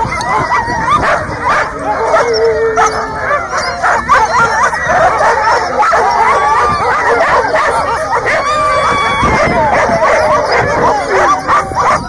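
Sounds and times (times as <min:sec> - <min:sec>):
sled dogs barking and howling: 0:00.0 - 0:12.0.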